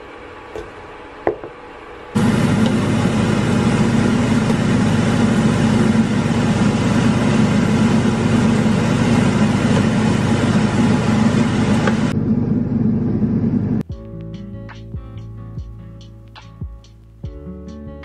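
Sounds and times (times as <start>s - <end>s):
kitchen appliance motor drone: 1.8s - 13.8s.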